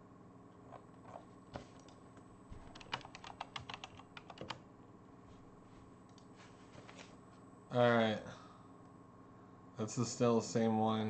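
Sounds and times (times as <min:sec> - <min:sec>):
typing on a computer keyboard: 0:02.7 - 0:04.6.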